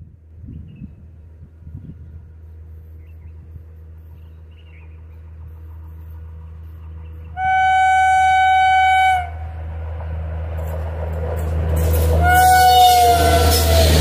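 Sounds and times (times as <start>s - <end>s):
train rumble: 0.0s - 14.0s
locomotive horn blasts: 7.3s - 9.6s, 12.1s - 14.0s.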